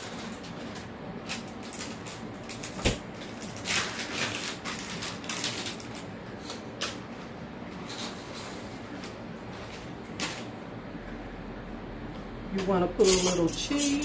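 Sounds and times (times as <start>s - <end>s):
kitchen items being moved: 12.6s - 14.0s.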